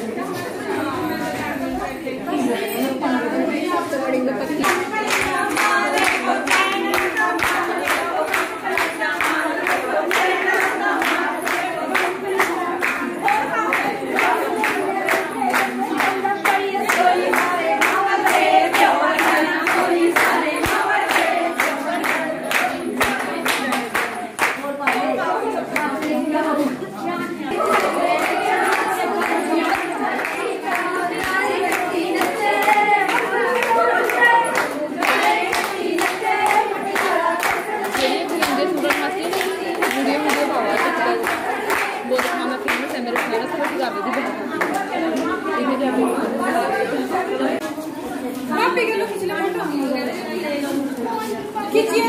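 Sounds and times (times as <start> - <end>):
rhythmic hand-clapping: 0.0 - 48.5
women singing together: 0.0 - 52.0.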